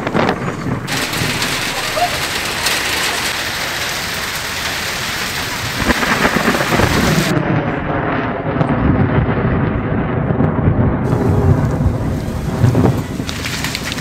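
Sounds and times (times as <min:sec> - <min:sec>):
heavy rain hissing: 0:00.0 - 0:07.3, 0:11.0 - 0:14.0
thunder rumbling: 0:00.0 - 0:14.0.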